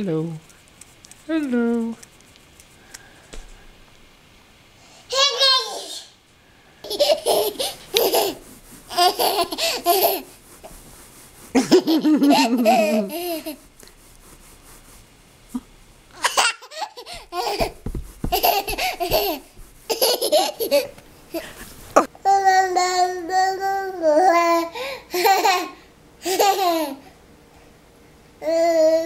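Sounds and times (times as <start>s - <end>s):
baby laughing: 6.8s - 10.3s, 11.6s - 13.6s, 16.2s - 21.6s, 25.1s - 27.0s.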